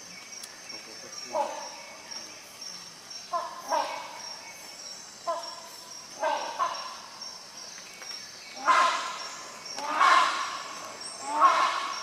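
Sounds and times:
hornbill calling: 3.2 - 4.3, 5.2 - 7.2, 8.6 - 12.0.

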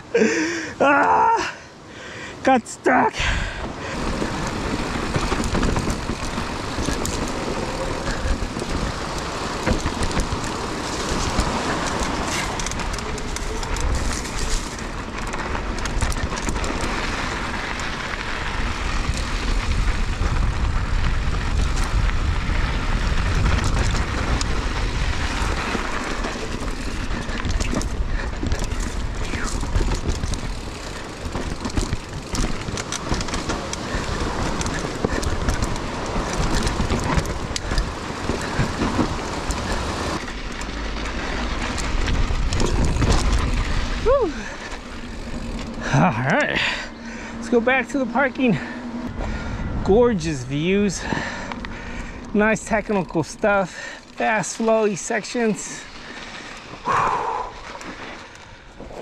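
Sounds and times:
bike tyres on dirt and rock: 0.0 - 59.0
wind rumble on microphone: 3.2 - 47.6, 48.3 - 52.6
bike rattling and knocking: 3.2 - 59.0.

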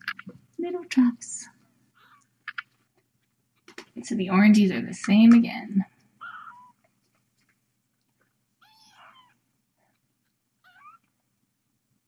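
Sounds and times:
kittens mewing: 6.2 - 6.8, 8.6 - 9.4, 10.6 - 11.1.

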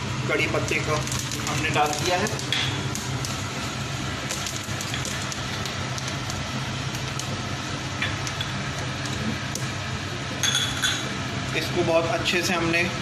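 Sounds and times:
spices sizzling in hot oil: 0.0 - 12.9
steady low hum: 0.0 - 13.0
small pops and crackles: 0.8 - 3.5, 4.2 - 9.7.

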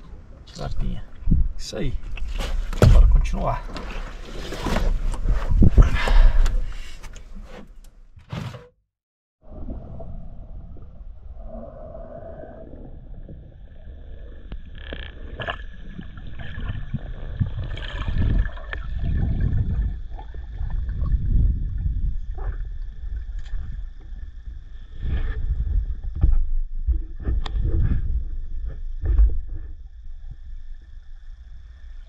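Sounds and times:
underwater water rumbling: 9.4 - 32.0.

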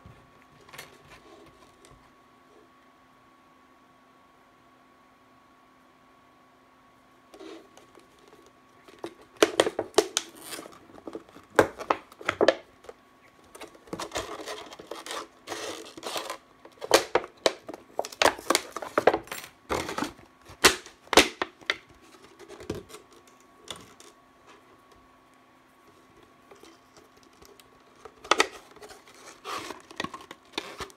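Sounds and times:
knife scraping plastic: 7.3 - 12.6, 13.4 - 24.6, 25.9 - 30.9
plastic bottle crinkling and cracking: 7.8 - 24.2, 26.1 - 30.9.

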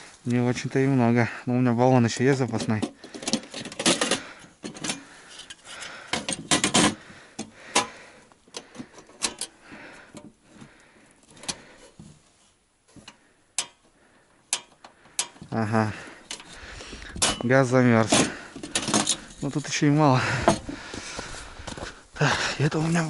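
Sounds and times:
stove clicks and knocks: 13.0 - 13.8.

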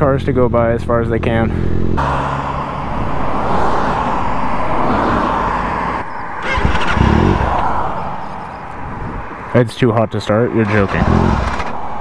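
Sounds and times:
car passing close by: 1.6 - 9.5.

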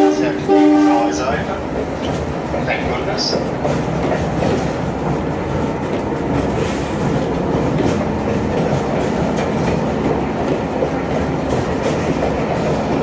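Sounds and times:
railcar engine and wheels running: 0.0 - 13.0.

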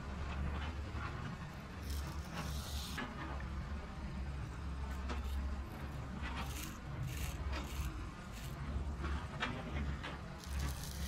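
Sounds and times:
toy digger scraping sand: 1.7 - 3.2, 4.9 - 8.8, 10.4 - 11.0.

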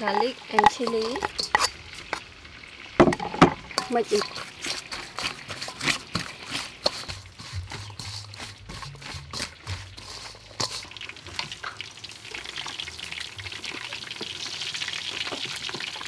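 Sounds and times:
frying oil sizzling: 0.0 - 16.0
hands tossing wet salad: 0.1 - 2.2, 3.8 - 11.7.

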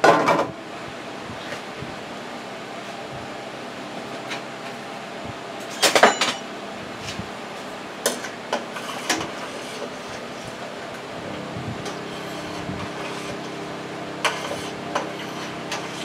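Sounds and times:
kitchenware clinking: 5.7 - 6.5.

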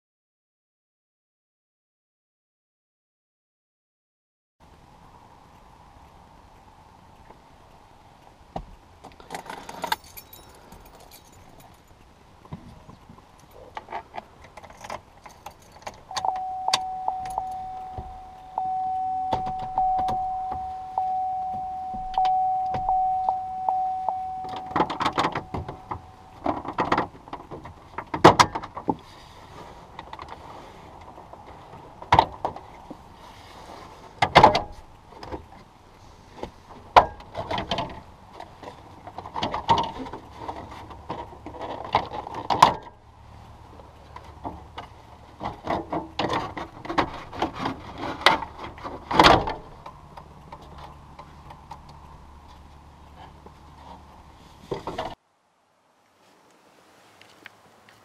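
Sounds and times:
plastic creaking and rattling: 9.1 - 10.1, 37.2 - 43.0, 44.1 - 52.0
steady tone: 16.1 - 26.5.

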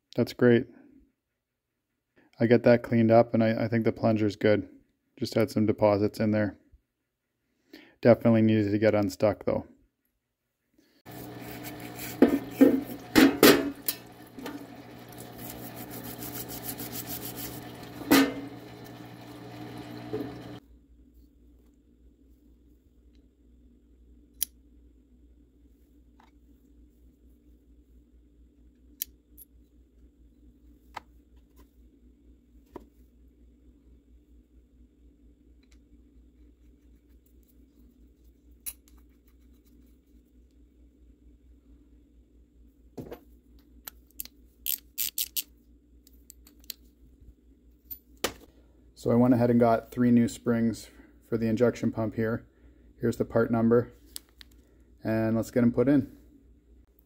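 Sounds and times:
stiff brushes scrubbing metal: 11.1 - 19.2
pump humming: 11.1 - 20.6
solvent running from spout: 11.1 - 20.6
small metal parts clicking: 44.1 - 45.5.

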